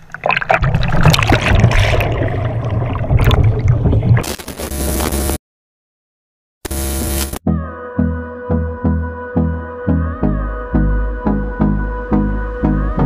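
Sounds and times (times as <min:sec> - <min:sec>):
paddle splashing water: 0:00.0 - 0:04.2.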